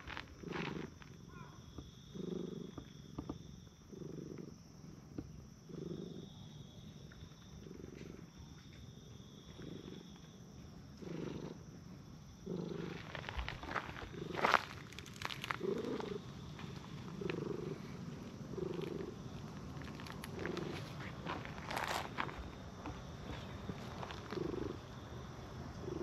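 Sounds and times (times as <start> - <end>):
cat purring: 2.1 - 3.3, 3.9 - 5.0, 5.6 - 6.5, 9.5 - 10.1, 11.0 - 11.8, 12.4 - 13.4, 15.4 - 22.4, 23.2 - 24.8, 25.7 - 26.0.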